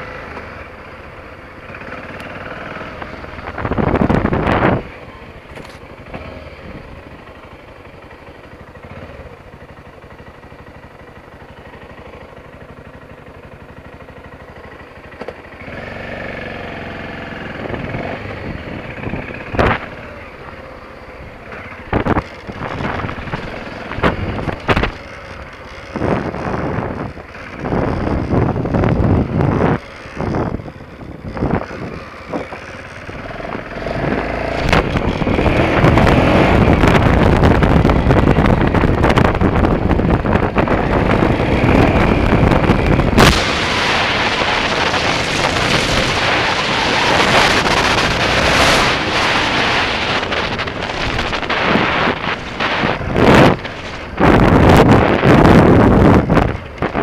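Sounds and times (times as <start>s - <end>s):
motorcycle engine: 0.0s - 57.0s
wind buffeting microphone: 2.6s - 5.0s, 21.2s - 57.0s.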